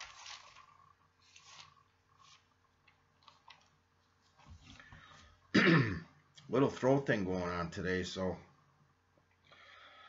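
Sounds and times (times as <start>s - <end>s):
faint clicks and rustles: 0.0s - 5.4s.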